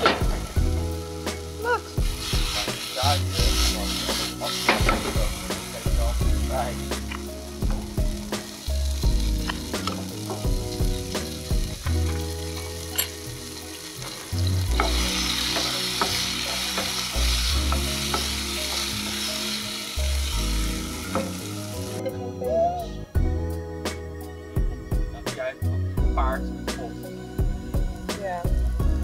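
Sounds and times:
food sizzling in a frying pan: 0.0s - 22.4s.

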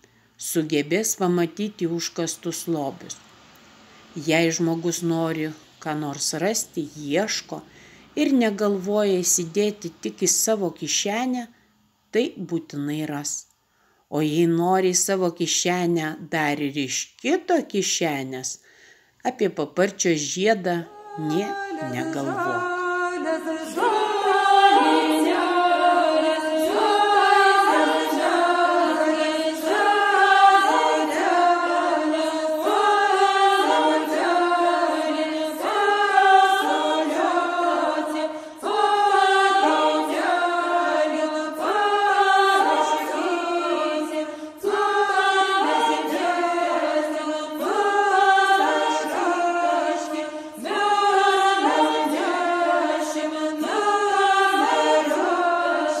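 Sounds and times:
breaths: 0.0s - 0.4s, 3.6s - 4.2s, 7.6s - 8.2s, 11.5s - 12.0s, 13.6s - 14.1s, 18.6s - 19.2s, 38.3s - 38.6s, 44.2s - 44.6s, 50.3s - 50.6s
group of voices chanting: 20.9s - 56.0s.

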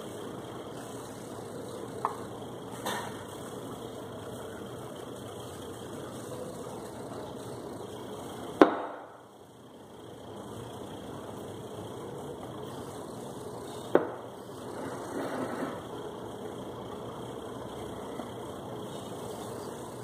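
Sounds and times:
low machine hum: 0.0s - 20.0s.

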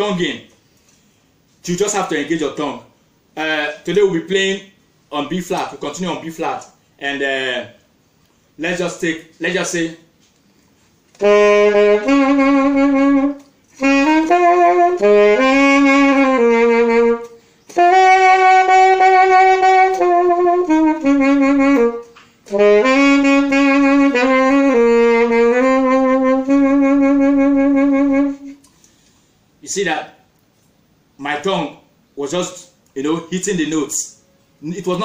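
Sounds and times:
saxophone jazzy melody: 11.1s - 28.7s.

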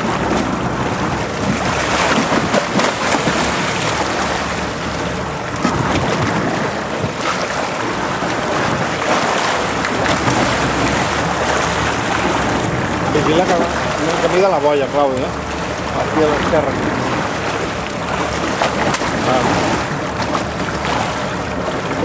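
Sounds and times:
sea noise: 0.0s - 22.0s
water splashing and churning: 0.0s - 22.0s
wind on microphone: 5.6s - 13.7s.

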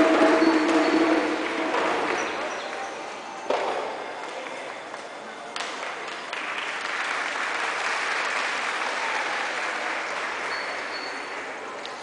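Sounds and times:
audience applauding: 5.6s - 11.7s.

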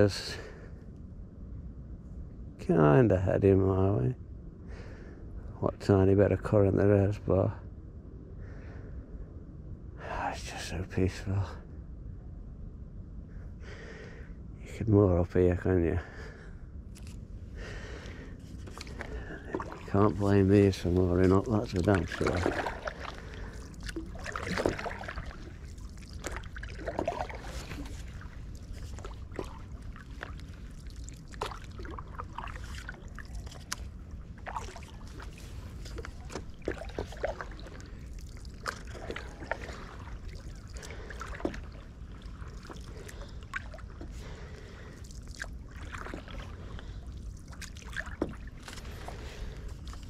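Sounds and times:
steady low rumble: 0.0s - 50.0s
water drips and small splashes: 16.9s - 50.0s
paddle dipping into water: 17.0s - 50.0s.

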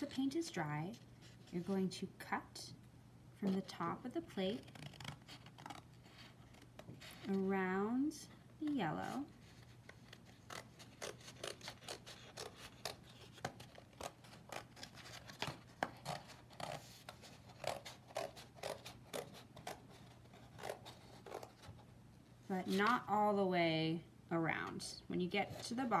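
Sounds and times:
scissors snipping paper: 9.9s - 16.8s, 17.5s - 21.6s.

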